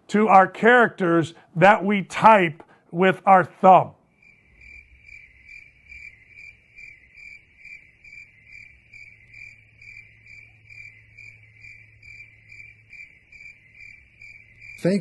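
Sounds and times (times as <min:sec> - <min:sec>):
cricket chirping: 0:04.0 - 0:15.0.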